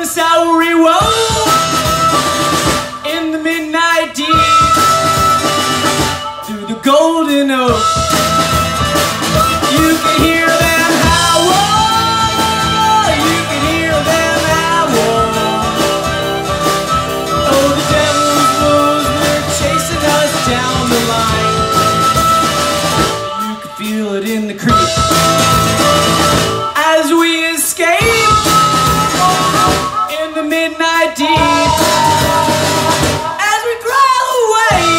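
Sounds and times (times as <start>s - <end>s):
bass guitar: 0.0s - 34.9s
drum kit: 0.0s - 34.9s
harmonica melody: 0.6s - 34.9s
strummed acoustic guitar: 7.3s - 27.0s.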